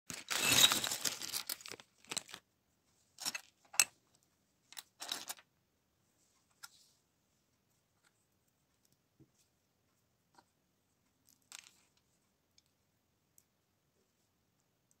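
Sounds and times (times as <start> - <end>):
plastic bag crinkling: 0.1 - 2.4
plastic bricks clattering: 0.1 - 2.4
plastic pieces clicking and rustling: 0.1 - 2.4, 4.7 - 5.4, 11.2 - 11.9.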